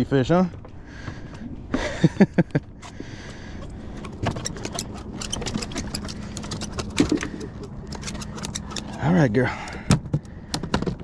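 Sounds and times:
rapid irregular clicking: 3.3s - 11.0s.

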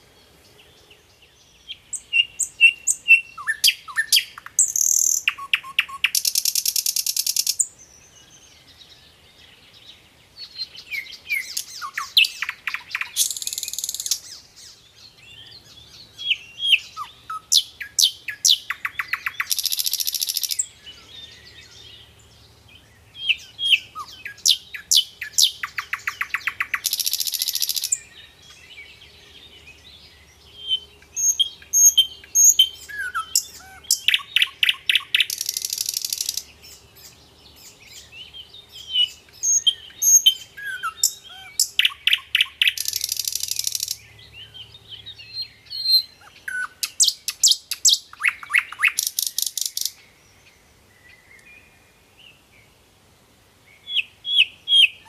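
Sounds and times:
bird chirps and whistles: 2.0s - 7.6s, 45.4s - 49.9s
rapid buzzing bird trill: 18.4s - 20.6s, 24.5s - 28.0s, 31.2s - 36.5s, 39.4s - 44.0s.

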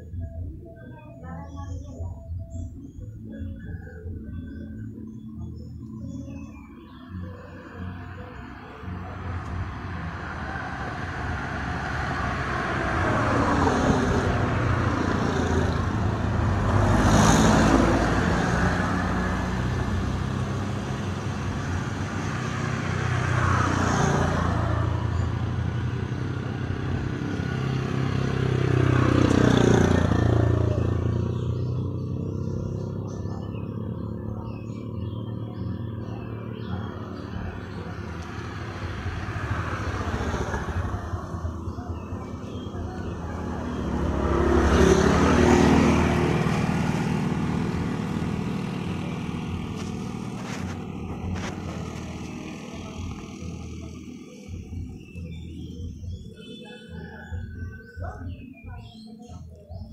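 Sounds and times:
motorbikes passing: 0.0s - 59.9s
car passing on road: 8.4s - 34.2s, 35.0s - 54.0s.

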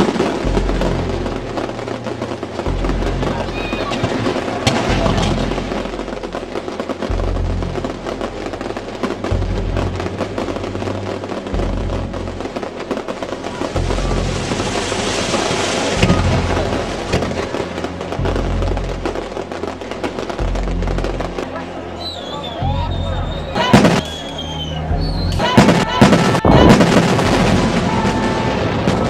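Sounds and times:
deep sustained bass line: 0.0s - 21.5s
crackling sputtering texture: 0.0s - 28.2s
film soundtrack music: 0.0s - 29.0s.

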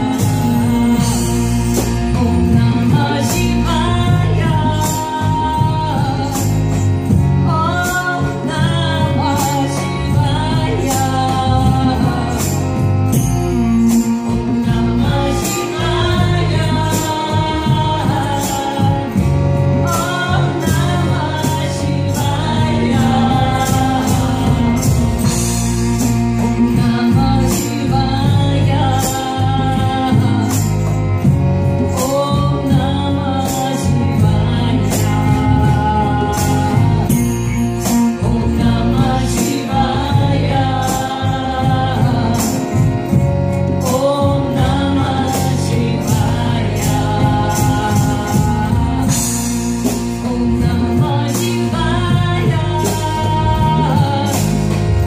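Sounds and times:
hand percussion beat: 0.0s - 55.0s.

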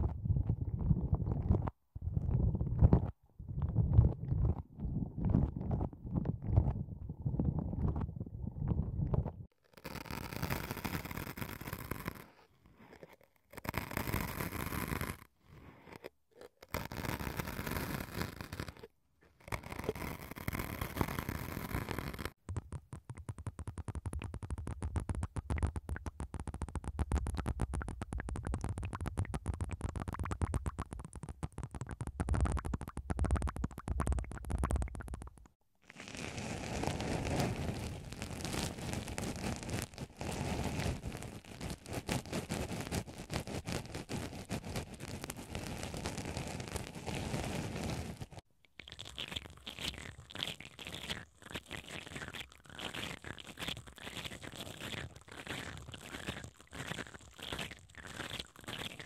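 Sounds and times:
cotton swab scratching foam: 7.5s - 59.0s
rapid syringe clicking: 19.5s - 35.6s.

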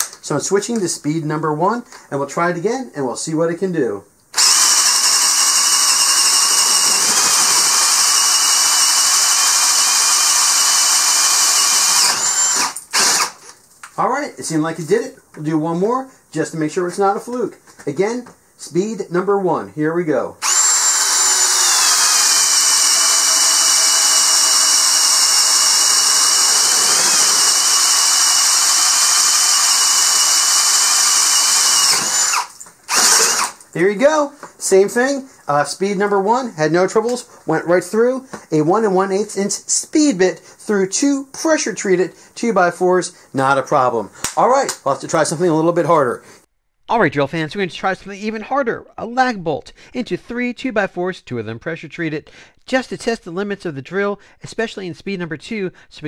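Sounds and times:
cordless drill cutting wood: 4.4s - 13.6s, 20.4s - 33.6s.

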